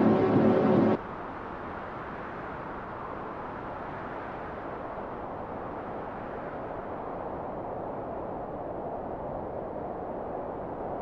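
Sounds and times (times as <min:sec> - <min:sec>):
steady rushing noise: 0:00.0 - 0:01.0.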